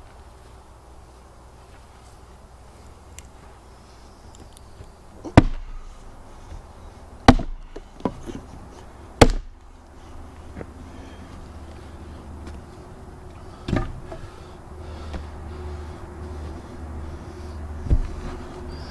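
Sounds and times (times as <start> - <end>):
maul splitting firewood: 5.2 - 9.8.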